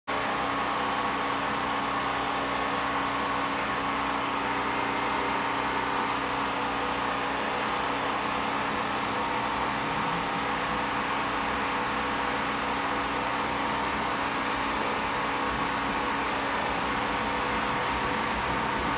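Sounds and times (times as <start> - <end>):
subway station hum and rumble: 0.1 - 18.9.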